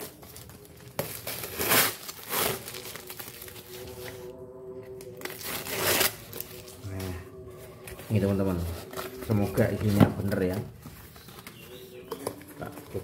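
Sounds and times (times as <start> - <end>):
packaging crinkling and tearing: 0.0 - 4.3, 5.0 - 7.1
packaging rustling: 0.0 - 4.3, 5.1 - 13.0.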